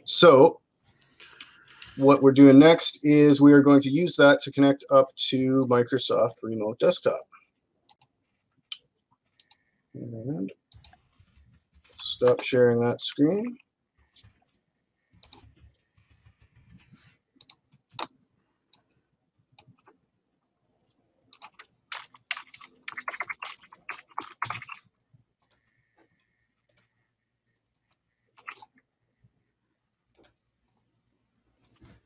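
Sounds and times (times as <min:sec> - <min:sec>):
keyboard typing: 0:07.2 - 0:09.6, 0:10.6 - 0:18.1, 0:20.8 - 0:26.9, 0:27.5 - 0:28.7
mouse clicks: 0:15.2 - 0:15.6, 0:17.4 - 0:18.1.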